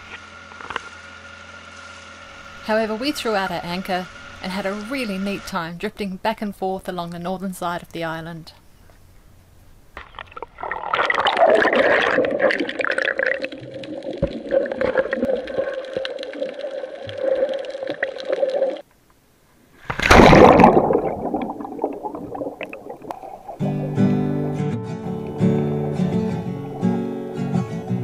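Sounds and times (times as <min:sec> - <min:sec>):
steady hum: 0:00.0 - 0:10.0, 0:18.8 - 0:28.0
water gurgling and sloshing: 0:09.0 - 0:18.9, 0:19.7 - 0:28.0.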